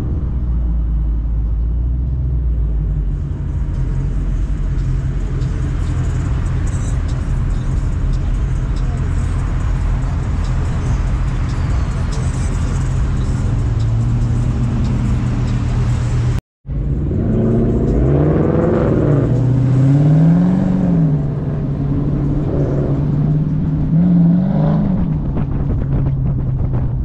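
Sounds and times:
car engine droning and revving: 0:00.0 - 0:27.0.

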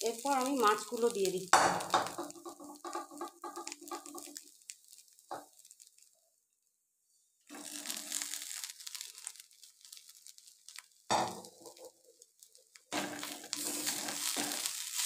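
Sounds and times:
fish sizzling in a pan: 0:00.0 - 0:15.0
metal spatula scraping: 0:12.9 - 0:15.0.

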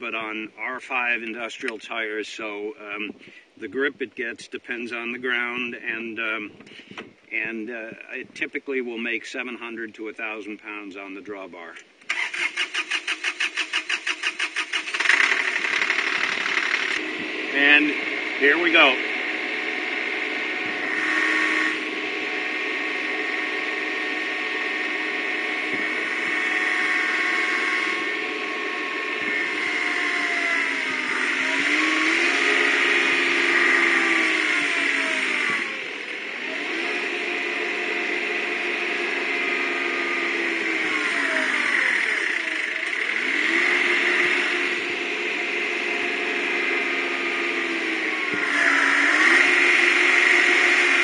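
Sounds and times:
tractor engine revving under load: 0:12.1 - 0:51.0.

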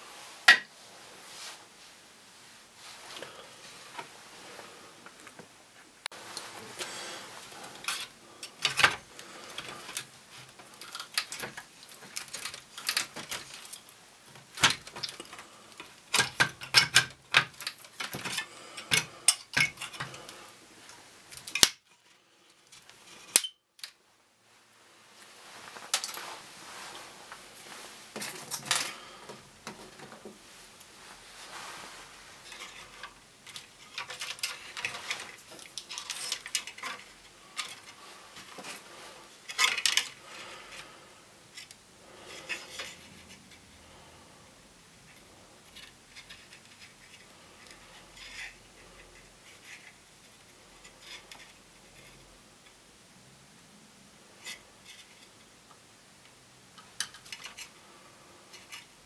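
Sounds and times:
small tools clicking and clattering: 0:07.6 - 0:20.4, 0:21.3 - 0:24.0, 0:28.2 - 0:29.0, 0:32.4 - 0:38.8, 0:39.4 - 0:40.8, 0:56.8 - 0:57.7.

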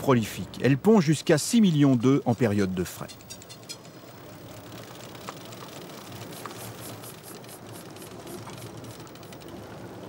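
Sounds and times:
fishing reel clicking: 0:04.5 - 0:09.5.

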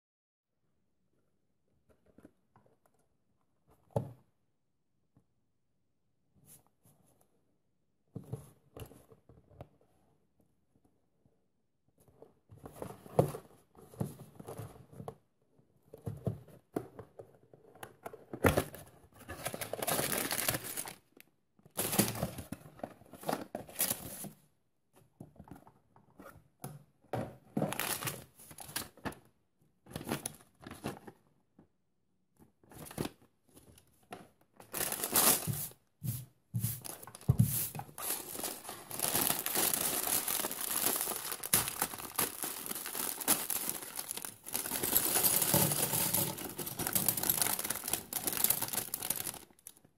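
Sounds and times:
cardboard rustling and tearing: 0:19.3 - 0:21.0, 0:34.7 - 0:35.8, 0:36.8 - 0:49.7
plastic bag crinkling: 0:19.7 - 0:21.0, 0:34.7 - 0:35.7, 0:37.9 - 0:49.8.

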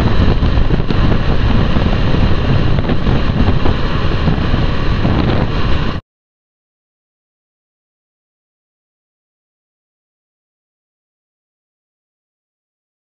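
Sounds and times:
wind buffeting microphone: 0:00.0 - 0:06.0.

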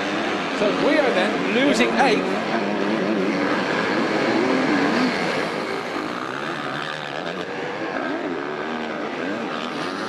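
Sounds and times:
motocross bike engine revving: 0:00.0 - 0:10.0.

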